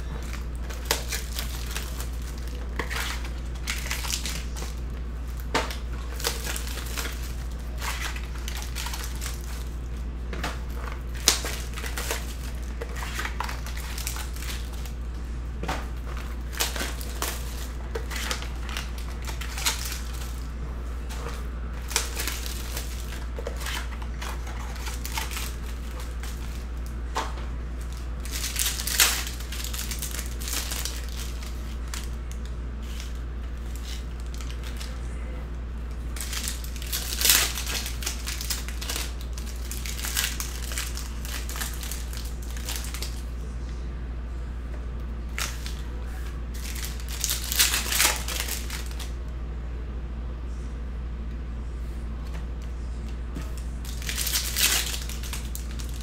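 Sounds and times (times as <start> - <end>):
foil wrappers crinkling: 0.0 - 35.2, 36.0 - 43.3, 45.3 - 45.9, 46.5 - 49.2, 53.5 - 56.0
steady low hum: 0.0 - 56.0.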